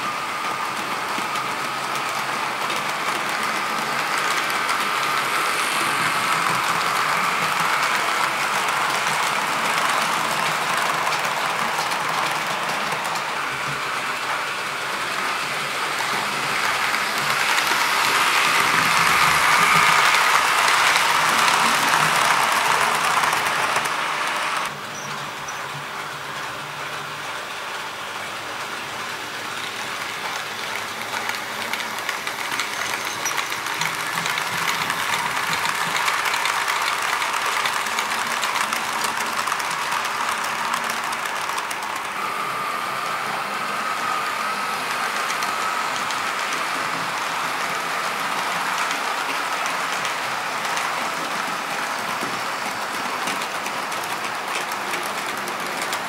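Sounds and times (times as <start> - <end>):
model train motors whirring: 0.0 - 56.0
wheels clicking over rail joints: 30.0 - 42.1.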